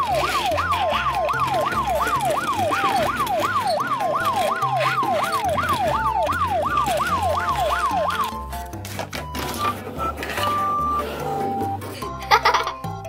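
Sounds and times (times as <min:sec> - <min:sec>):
toy siren yelp: 0:00.0 - 0:08.6
background music with bass line: 0:05.7 - 0:13.0.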